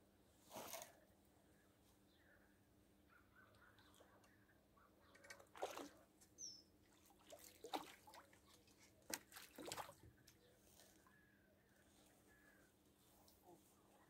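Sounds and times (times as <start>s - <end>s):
fish splashing at water surface: 5.5s - 6.0s, 7.0s - 10.0s.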